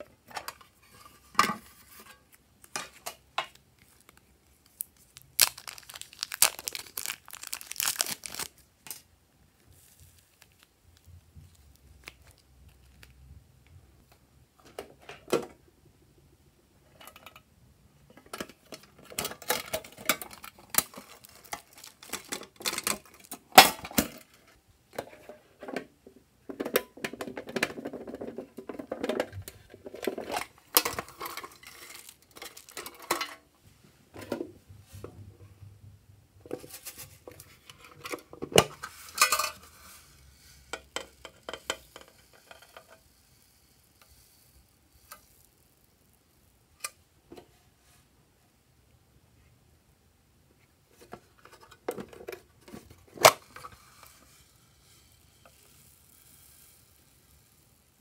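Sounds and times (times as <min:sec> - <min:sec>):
plastic containers clattering: 0:05.2 - 0:09.0, 0:18.1 - 0:33.5.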